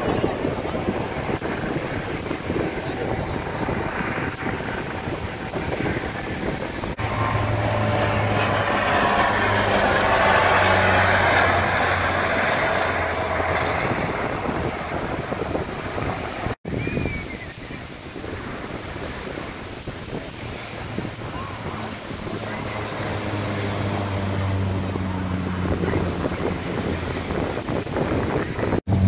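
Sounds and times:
aircraft engine drone with whine: 0.0 - 29.0
wind on microphone: 0.0 - 29.0.

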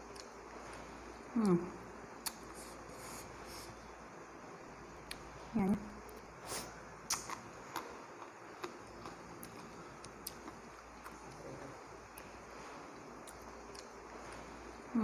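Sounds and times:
faint eating clicks and taps: 13.2 - 14.4.

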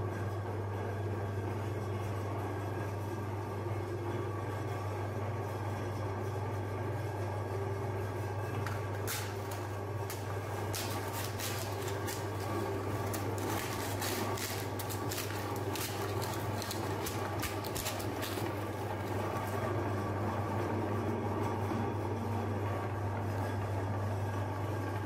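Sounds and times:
meat grinder motor humming: 2.2 - 25.0
plastic and cones cracking: 8.7 - 19.5.

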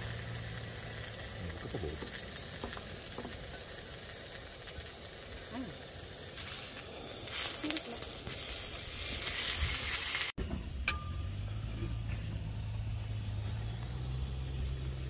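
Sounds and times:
food sizzling on grill pan: 0.0 - 10.4
low hum: 10.4 - 15.0.

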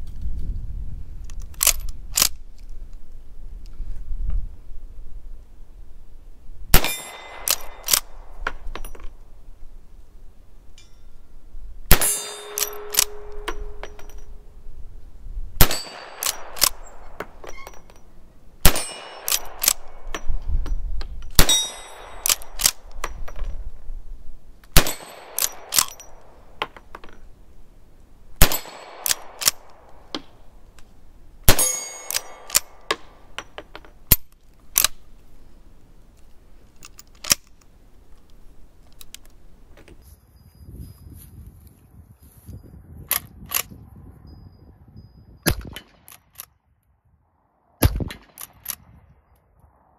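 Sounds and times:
metallic clacks of rifle lever: 1.2 - 3.0, 6.8 - 9.3, 12.0 - 14.4, 15.6 - 23.7, 24.6 - 27.3, 28.4 - 35.3, 36.2 - 40.1, 43.1 - 43.7, 45.5 - 46.5, 47.8 - 48.9
lever-action rifle shots: 6.7 - 9.4, 11.9 - 14.7, 15.6 - 20.5, 21.2 - 23.6, 24.7 - 27.3, 28.4 - 35.0, 45.5 - 46.5, 47.8 - 49.0.

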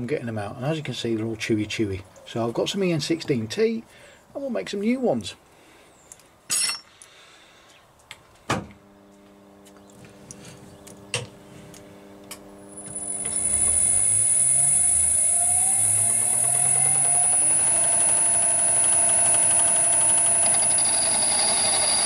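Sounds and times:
metal lathe whining: 12.1 - 22.0.

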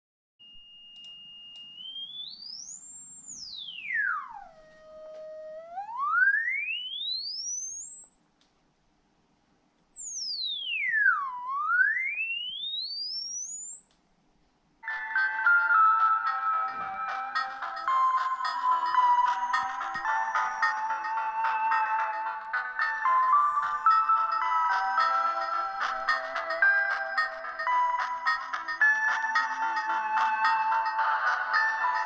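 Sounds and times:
sine-wave test tone sweep: 0.4 - 8.7, 9.3 - 14.9.

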